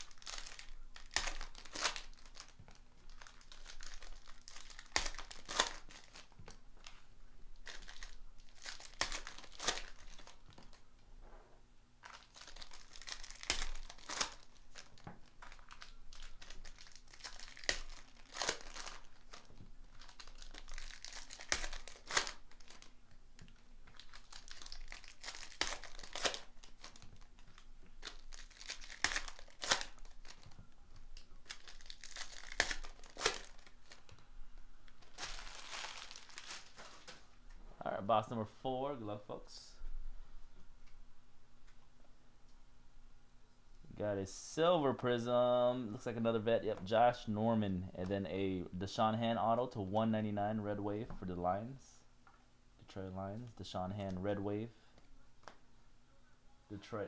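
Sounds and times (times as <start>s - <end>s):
foil wrappers crinkling and tearing: 0.0s - 10.8s, 12.0s - 23.0s, 23.9s - 34.2s, 34.9s - 37.2s.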